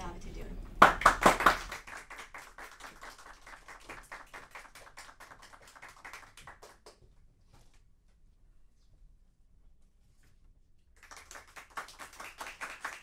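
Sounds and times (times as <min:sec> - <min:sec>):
audience applauding: 0:00.8 - 0:07.0, 0:11.0 - 0:13.0.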